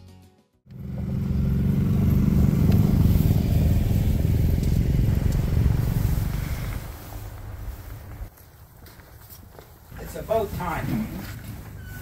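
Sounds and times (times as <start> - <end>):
vehicle engine running: 0.7 - 8.3.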